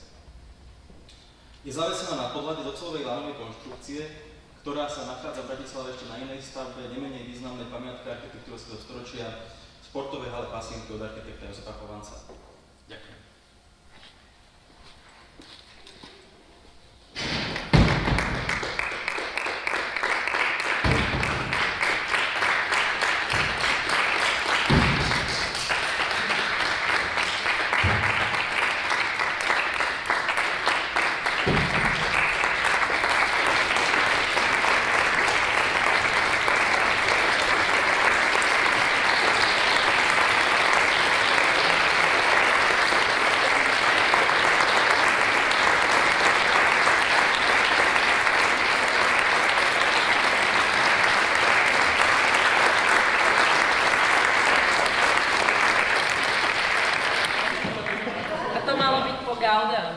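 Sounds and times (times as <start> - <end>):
audience applauding: 17.6 - 58.6.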